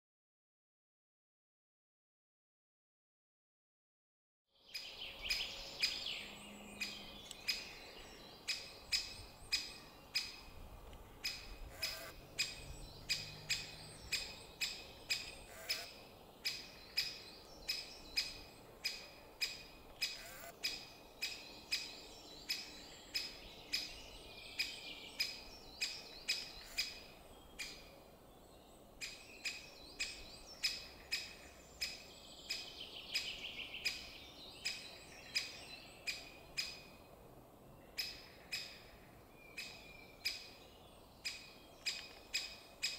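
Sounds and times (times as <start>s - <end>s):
twittering birdsong: 4.6s - 42.9s
woodpecker kik calls: 8.4s - 10.6s, 11.2s - 24.0s, 24.6s - 28.0s, 29.0s - 36.9s, 38.0s - 40.6s, 41.2s - 42.9s.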